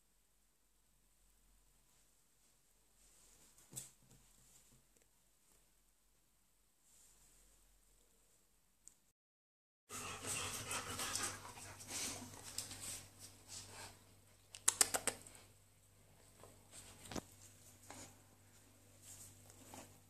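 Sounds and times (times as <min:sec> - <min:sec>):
dog claws clicking on tile floor: 0:14.5 - 0:15.3.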